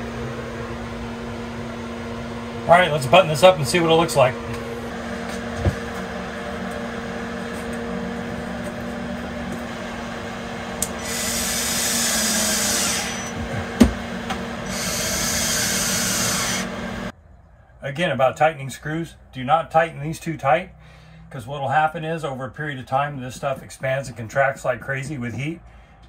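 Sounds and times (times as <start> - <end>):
low hum: 0.0 - 21.5
cordless drill driving screws: 10.8 - 17.1.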